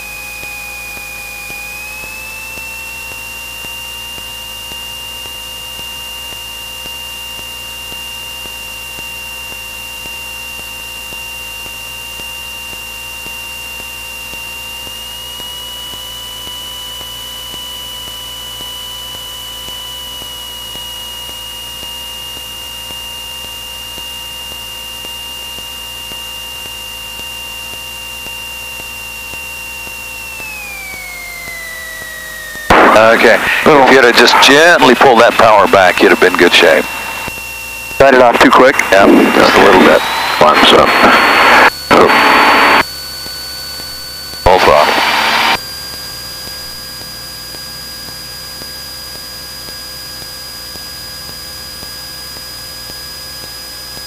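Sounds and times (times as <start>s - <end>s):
light aircraft engine and propeller: 0.0s - 54.0s.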